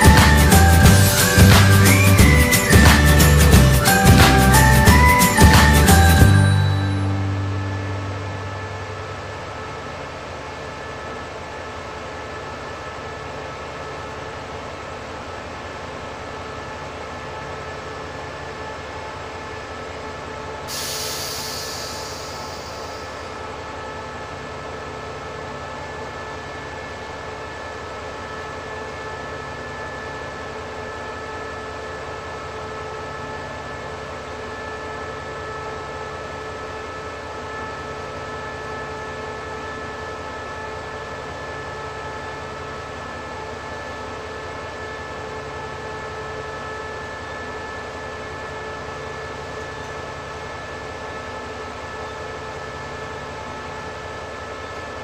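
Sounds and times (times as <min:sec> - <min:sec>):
high whining tones: 0:00.0 - 0:11.3, 0:20.7 - 0:26.9
diesel locomotive idling: 0:00.0 - 0:55.0.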